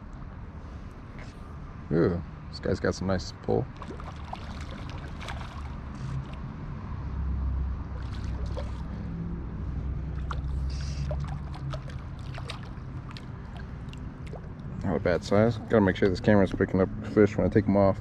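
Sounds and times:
river water rumbling: 0:03.1 - 0:17.0
small clicks and splashes: 0:03.7 - 0:06.5, 0:07.9 - 0:08.9, 0:10.2 - 0:14.9.

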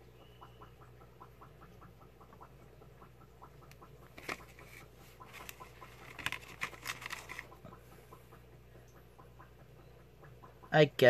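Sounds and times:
paper crinkling: 0:04.2 - 0:07.5.

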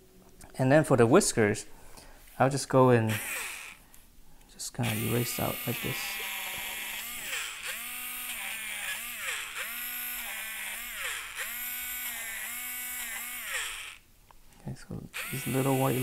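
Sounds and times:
electric eraser whirring: 0:03.1 - 0:03.8, 0:04.8 - 0:14.0, 0:15.2 - 0:16.0.

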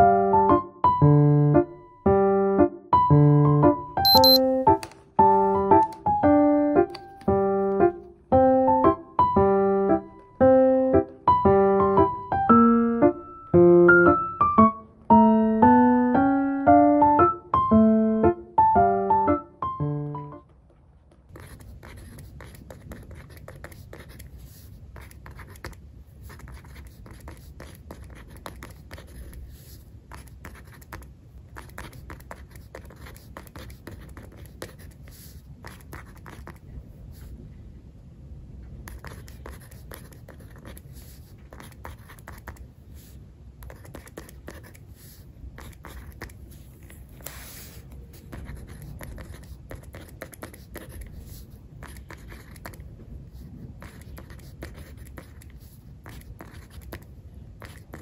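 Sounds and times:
pencil scratching on paper: 0:21.4 - 0:31.0, 0:31.6 - 0:37.3, 0:38.9 - 0:58.0.

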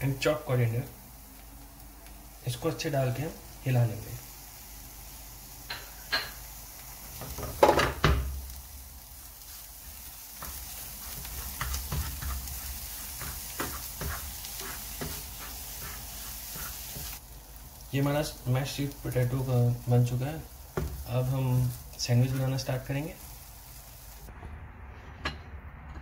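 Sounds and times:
soft sizzle of frying: 0:00.0 - 0:24.3
spatula scraping frying pan: 0:09.4 - 0:17.2.

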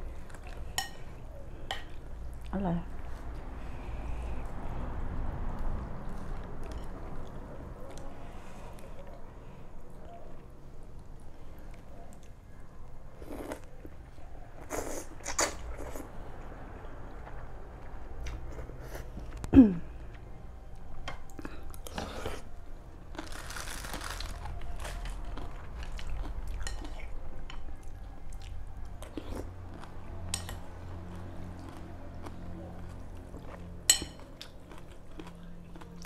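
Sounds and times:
chewing and mouth clicks: 0:25.4 - 0:36.0.

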